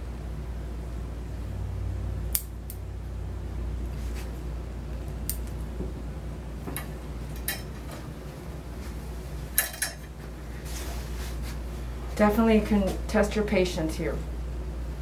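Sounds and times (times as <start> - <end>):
steady low hum: 0.0 - 15.0
scissors snipping fur: 2.3 - 2.8.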